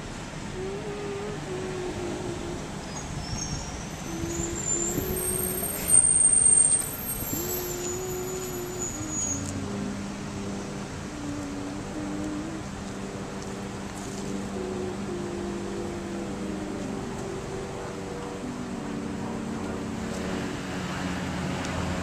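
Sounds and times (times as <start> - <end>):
city street traffic: 0.0 - 22.0
vehicle brakes squealing: 2.9 - 9.6
held low notes: 7.2 - 22.0.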